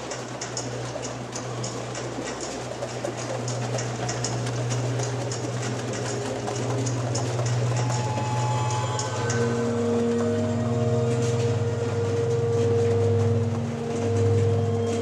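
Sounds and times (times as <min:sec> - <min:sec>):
saxophone low drone: 0:05.2 - 0:15.0.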